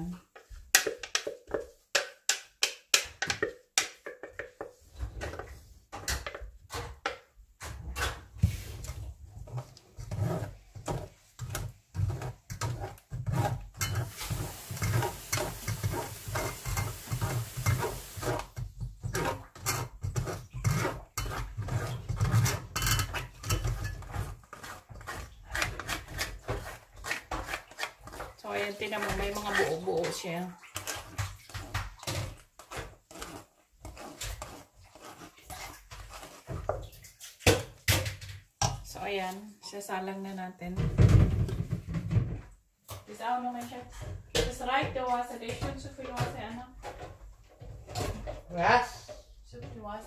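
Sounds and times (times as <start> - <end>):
spoon scraping metal sieve: 7.7 - 37.5.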